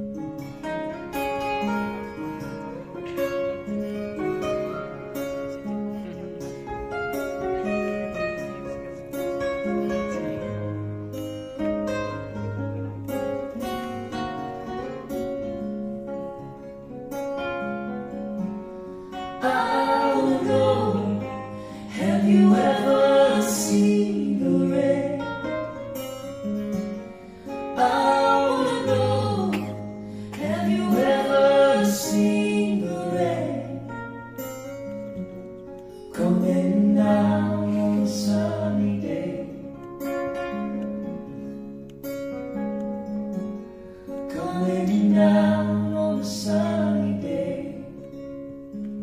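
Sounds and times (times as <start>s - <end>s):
acoustic guitars playing chords: 0.0s - 49.0s
voices singing: 19.3s - 25.8s, 27.6s - 34.0s, 36.1s - 39.9s, 44.3s - 48.2s.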